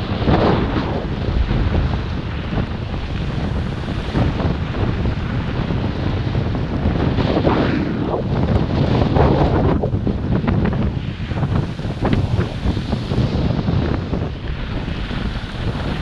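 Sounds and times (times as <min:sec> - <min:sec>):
wind buffeting microphone: 0:00.0 - 0:16.0
skis sliding on snow: 0:11.3 - 0:16.0.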